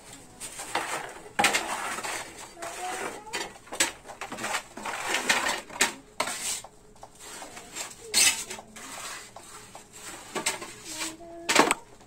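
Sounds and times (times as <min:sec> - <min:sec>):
trowel scraping metal pan: 0:00.6 - 0:03.2, 0:08.1 - 0:09.4.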